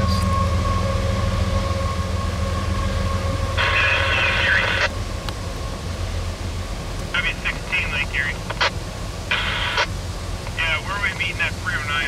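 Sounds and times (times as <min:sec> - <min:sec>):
freight train rumbling past: 0:00.0 - 0:12.0
radio chatter: 0:03.6 - 0:04.9, 0:07.1 - 0:12.0.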